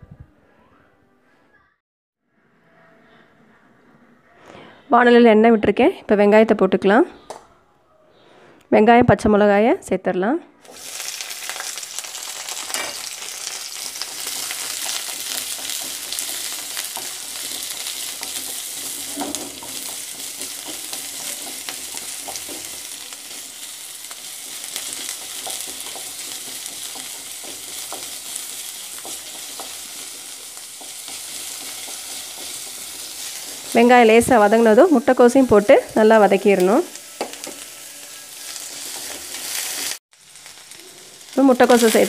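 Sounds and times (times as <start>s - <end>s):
onions sizzling in hot oil: 10.6s - 42.0s
wooden spatula scraping pan: 12.9s - 34.7s.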